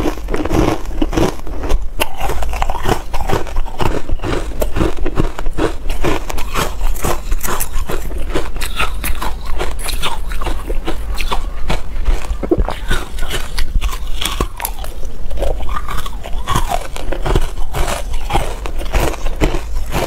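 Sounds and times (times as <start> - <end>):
ice crunching in mouth: 0.0 - 20.0.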